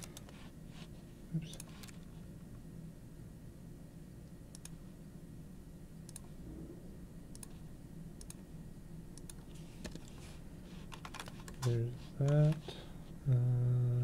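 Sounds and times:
computer mouse clicking: 0.0 - 0.4, 1.5 - 2.1, 4.5 - 4.8, 6.1 - 6.4, 7.3 - 7.6, 8.2 - 8.4, 9.2 - 10.1, 10.9 - 12.6
faint low hum: 0.0 - 14.0.

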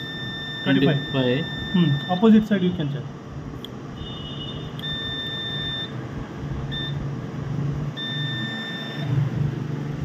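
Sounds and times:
multimeter beeping: 0.0 - 2.5, 4.6 - 6.0, 6.7 - 7.1, 8.0 - 9.2.

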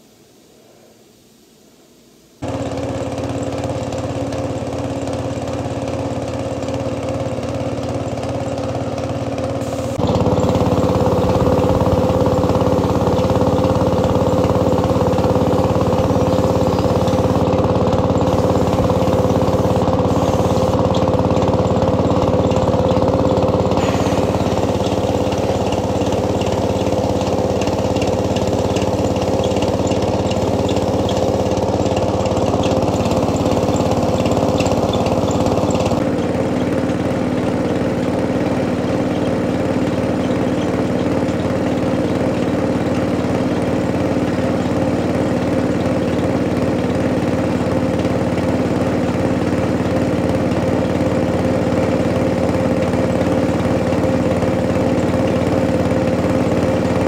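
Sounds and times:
air compressor running: 2.4 - 57.0.

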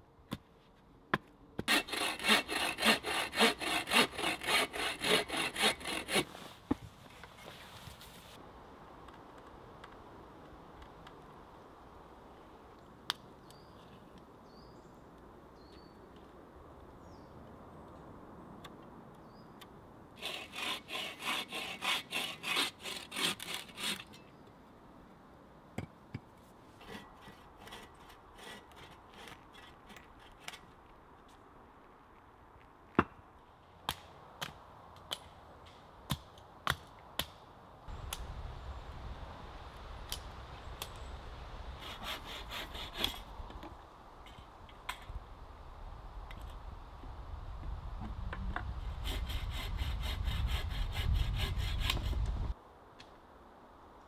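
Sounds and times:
bow saw cutting wood: 1.6 - 6.4, 20.2 - 24.2, 26.8 - 30.6, 41.8 - 43.6, 48.6 - 52.5.

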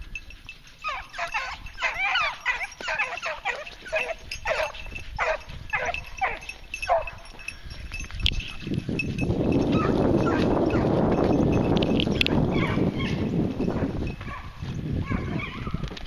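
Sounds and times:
dogs yelping barks: 0.7 - 7.5, 9.6 - 11.4, 12.1 - 15.9.

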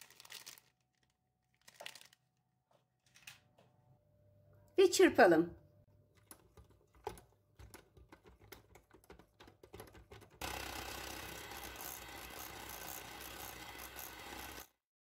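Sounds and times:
electric hand mixer whirring: 10.4 - 14.8.

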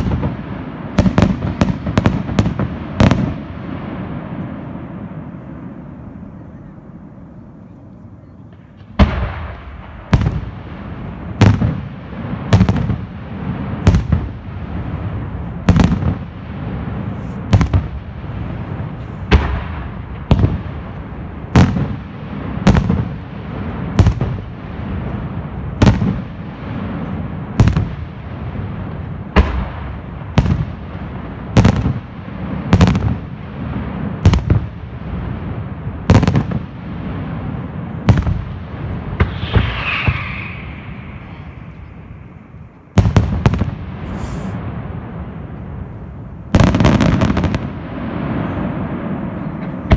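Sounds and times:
firework shells bursting: 39.1 - 44.6.

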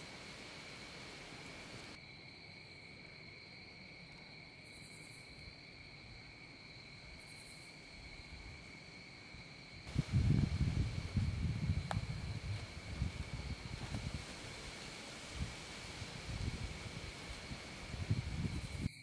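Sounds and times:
insect buzzing: 0.0 - 2.0, 9.6 - 19.0
low rushing noise: 9.9 - 18.9.

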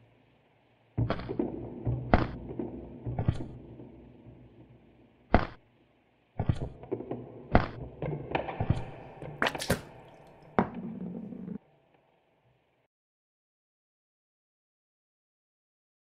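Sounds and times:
sharp knocks and thunks: 1.0 - 3.8, 5.3 - 5.6.

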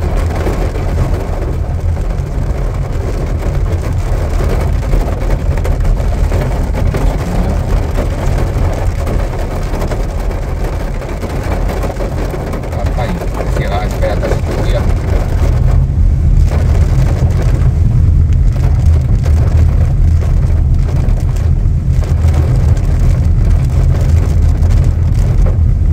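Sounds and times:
engine and tyres on wet road: 0.0 - 25.9
rain: 0.0 - 25.9.

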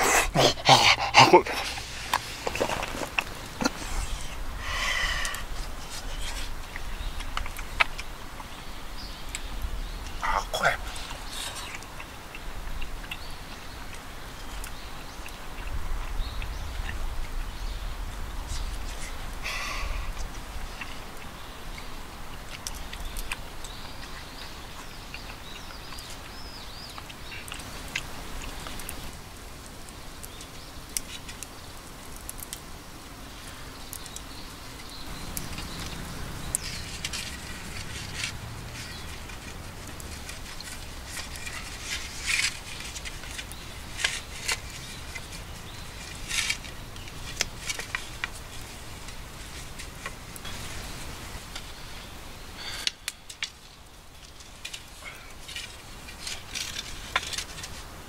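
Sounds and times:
wooden poles rustling and knocking: 1.5 - 8.0, 35.3 - 51.7, 52.7 - 58.0.

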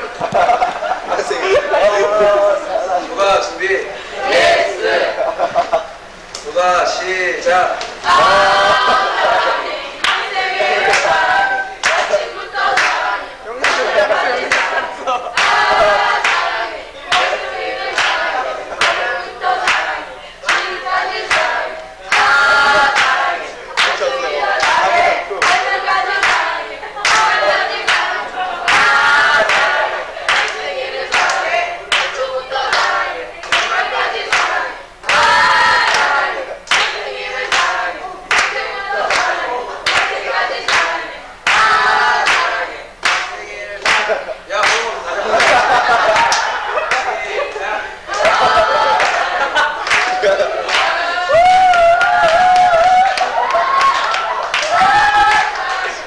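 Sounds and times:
girls singing together: 0.0 - 6.4, 7.5 - 56.0
hand claps: 11.8 - 12.2, 13.6 - 14.8, 17.1 - 18.2, 25.4 - 25.6, 26.2 - 27.3, 28.7 - 37.7, 38.3 - 39.3, 39.9 - 40.9, 41.5 - 47.1, 48.2 - 56.0.

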